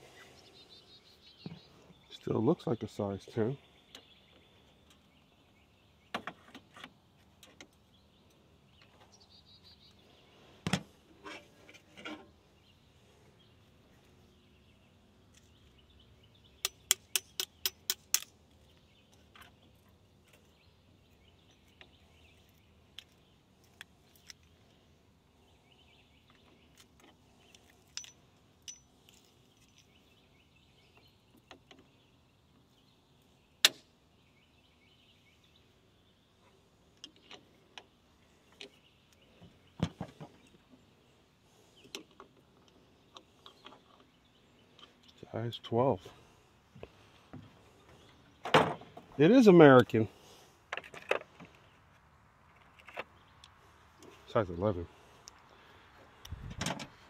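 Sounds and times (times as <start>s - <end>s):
metal hand tools clinking: 27.8s - 30.0s.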